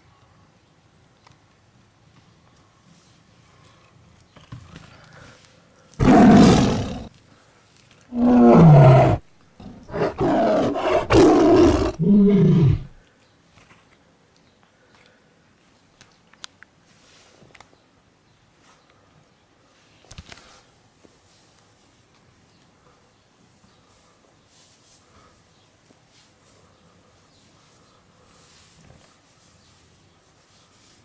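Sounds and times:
cat yowling and growling: 8.2s - 13.0s.

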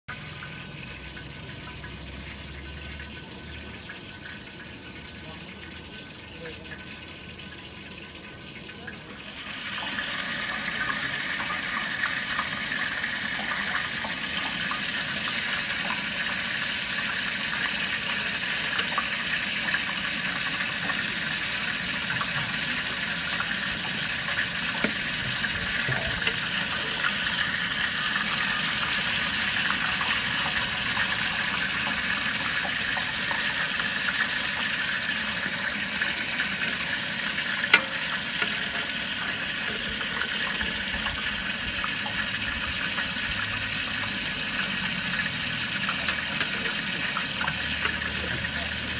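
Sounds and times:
gravy boiling in a pot: 0.1s - 48.9s
ladle stirring: 16.9s - 34.6s, 45.3s - 48.9s.

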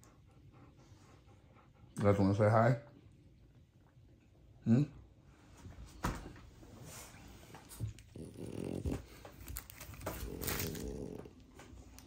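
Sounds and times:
dog grumbling: 8.0s - 9.4s, 10.0s - 11.5s.

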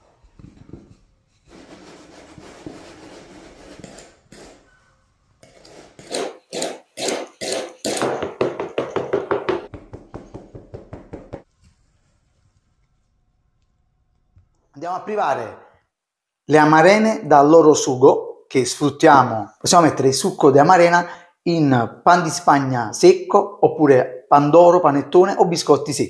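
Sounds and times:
rolling pin scraping tart tin: 0.0s - 8.2s
knife scraping metal tin: 0.4s - 8.0s.

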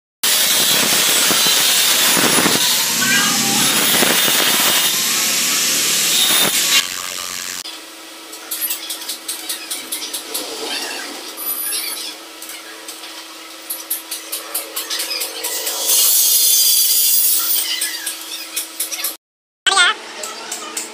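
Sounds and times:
loud power tool: 0.2s - 7.6s
arc welding crackling: 0.3s - 7.6s
electrical hum: 0.3s - 7.6s.

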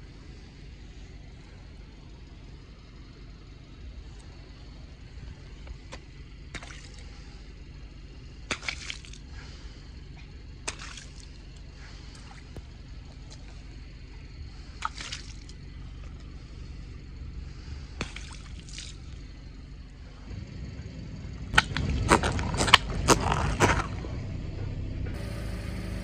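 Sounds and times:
low rumble: 0.0s - 26.0s
water balloons tapping and sloshing: 5.6s - 7.1s, 8.4s - 9.3s, 10.6s - 13.7s, 14.6s - 16.4s, 18.0s - 19.2s, 21.5s - 24.0s.

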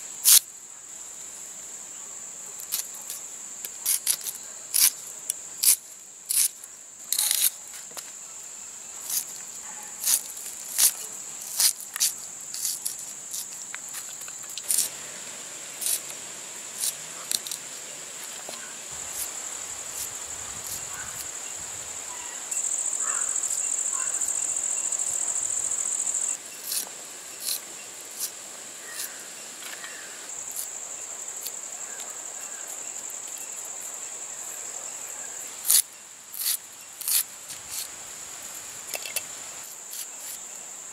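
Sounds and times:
high insect trill: 0.0s - 40.9s
knife cutting onion: 36.4s - 37.9s.

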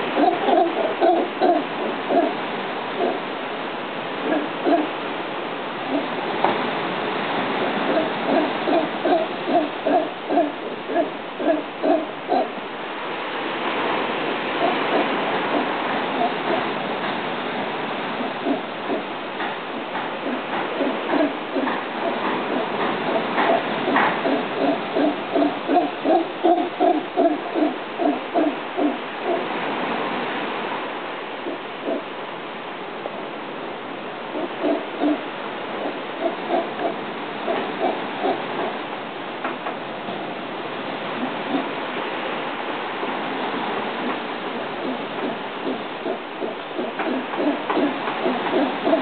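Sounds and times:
howler monkey calling: 0.0s - 3.4s, 4.1s - 5.1s, 5.8s - 6.2s, 7.8s - 12.7s, 14.5s - 29.6s, 31.4s - 32.2s, 34.2s - 38.9s, 40.2s - 42.4s, 43.8s - 49.0s
steady hiss: 0.0s - 49.0s.

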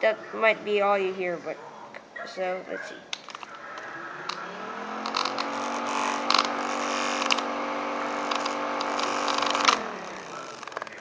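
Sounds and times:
siren wailing: 3.5s - 5.5s.

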